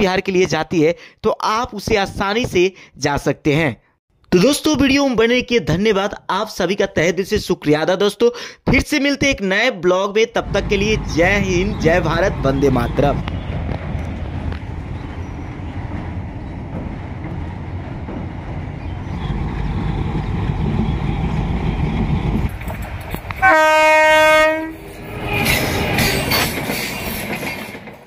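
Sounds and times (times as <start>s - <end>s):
train rumbling: 10.4s - 28.0s
diesel locomotive horn: 23.4s - 24.9s.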